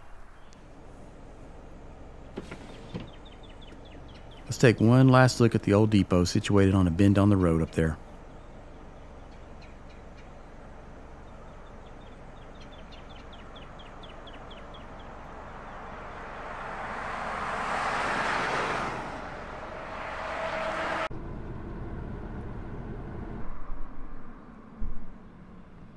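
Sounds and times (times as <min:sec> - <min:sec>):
pickup truck passing: 0:00.7 - 0:23.4
small bird chirping: 0:02.8 - 0:04.5, 0:07.7 - 0:15.9.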